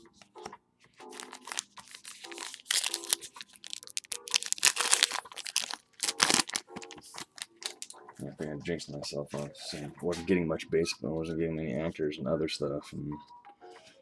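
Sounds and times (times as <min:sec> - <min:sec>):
card pack wrapper crinkling and tearing: 0:01.1 - 0:07.9.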